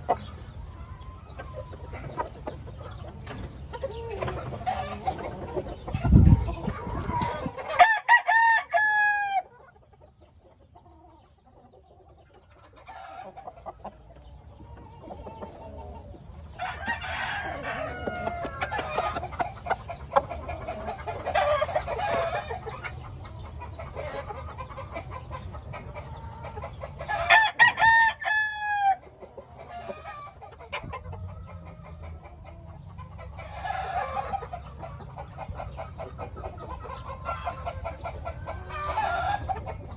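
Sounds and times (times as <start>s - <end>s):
roosters crowing: 0.0s - 9.7s, 12.7s - 39.9s
chickens clucking: 0.0s - 39.9s.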